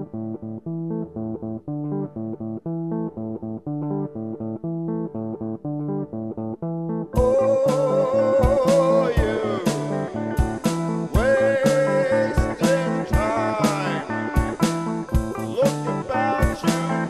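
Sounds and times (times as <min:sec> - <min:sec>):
plucked guitar: 0:00.0 - 0:17.0
bass line: 0:06.6 - 0:17.0
held lead guitar note: 0:07.1 - 0:17.0
drums: 0:07.2 - 0:17.0.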